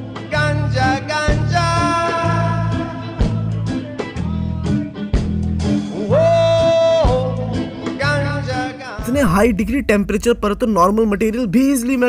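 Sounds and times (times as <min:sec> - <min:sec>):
person singing: 0:05.9 - 0:09.6
steady beat: 0:09.0 - 0:12.0.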